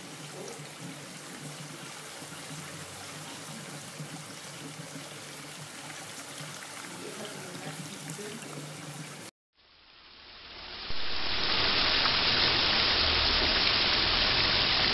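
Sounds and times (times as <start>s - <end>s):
fountain water rushing and splashing: 0.0s - 9.3s, 10.9s - 14.9s
water trickling over stone: 0.0s - 9.3s.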